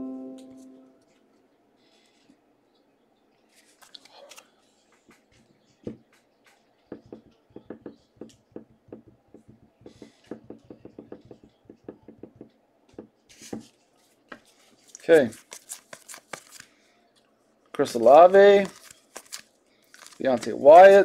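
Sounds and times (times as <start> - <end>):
knock: 6.9 - 12.5
card stack rustling: 14.4 - 16.8, 17.9 - 21.0
cards snapping: 15.4 - 16.7, 18.6 - 20.5.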